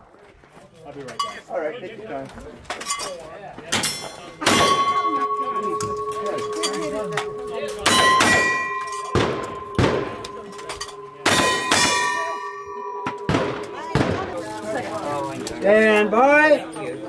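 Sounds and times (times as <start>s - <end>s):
steel target ringing: 3.8s - 15.1s.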